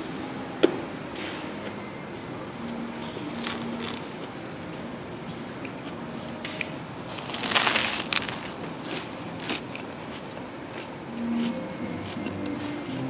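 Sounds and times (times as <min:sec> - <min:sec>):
crunchy bread bitten and chewed: 0:03.3 - 0:04.3, 0:07.0 - 0:12.4.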